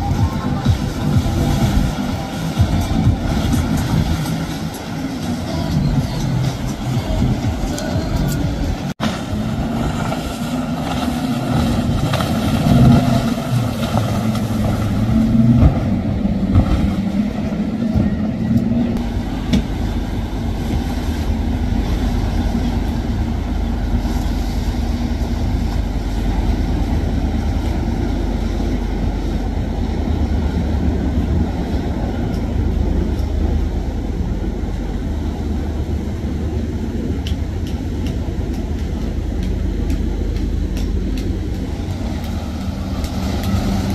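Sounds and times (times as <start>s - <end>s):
higher engine note wavering: 0.0s - 43.9s
motorboat engines rumbling: 0.0s - 43.9s.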